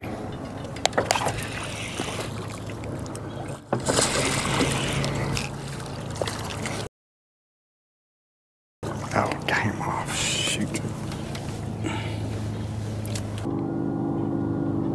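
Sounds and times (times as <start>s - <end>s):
fish splashing in water: 0.6s - 6.9s, 8.8s - 13.5s
steady low hum: 8.8s - 14.9s.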